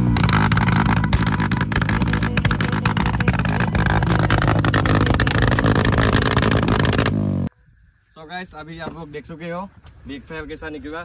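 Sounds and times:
exhaust backfire pops: 0.0 - 7.5
motorcycle engine idling: 0.0 - 7.5.

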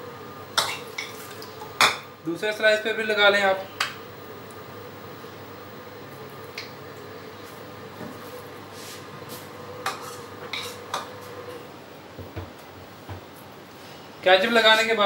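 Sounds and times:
faint steady hum: 0.0 - 15.0
spoon scraping on bread: 9.8 - 11.1.

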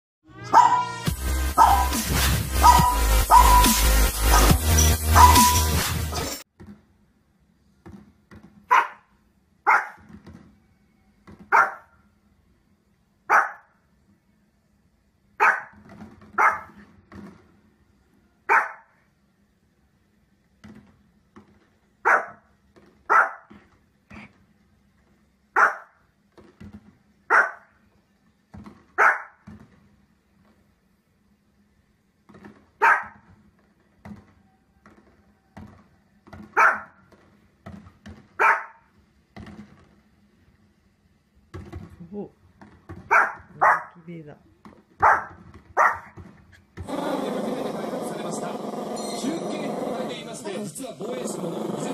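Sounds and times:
electronic music: 0.2 - 6.4
dog barking: 0.5 - 0.9, 1.6 - 2.0, 2.6 - 5.7, 8.7 - 9.1, 9.7 - 10.0, 11.5 - 12.0, 13.3 - 13.7, 15.4 - 15.8, 16.4 - 16.8, 18.5 - 19.0, 22.0 - 22.4, 23.1 - 23.5, 25.6 - 26.0, 27.3 - 27.7, 29.0 - 29.4, 32.8 - 33.2, 36.6 - 36.9, 38.4 - 38.8, 43.1 - 44.0, 45.0 - 46.2.

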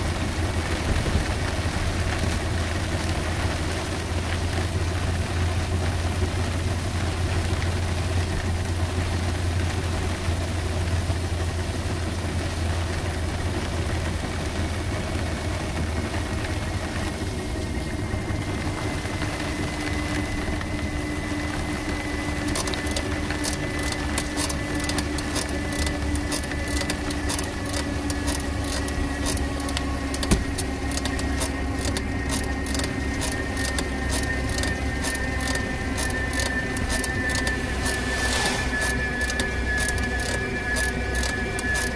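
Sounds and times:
faint whine shifting in pitch: 0.0 - 41.9
road and wind noise in cabin: 0.0 - 41.9
fast regular ticking: 22.4 - 41.9.

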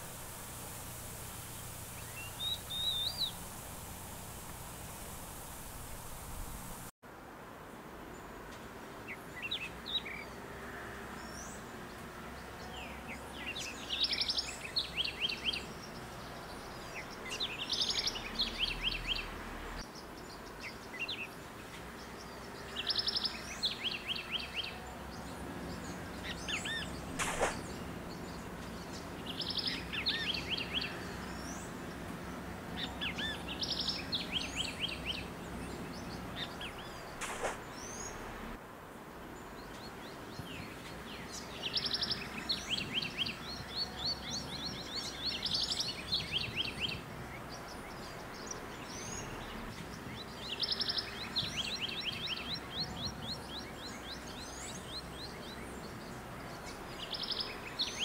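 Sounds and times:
songbird singing: 0.0 - 7.0, 9.0 - 38.6, 39.2 - 58.0
outdoor ambience hiss: 0.0 - 58.0
sharp click: 27.2 - 27.7, 37.2 - 37.9.

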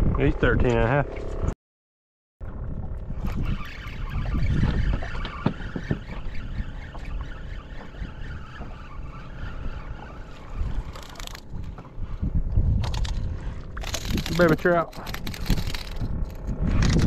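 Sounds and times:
wind buffeting microphone: 2.4 - 17.0
water lapping against boat hull: 4.0 - 12.6.

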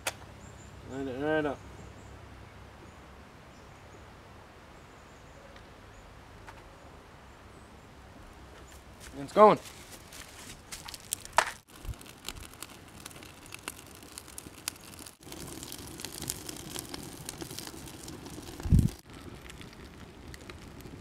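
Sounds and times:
wood fire crackling: 9.0 - 21.0.

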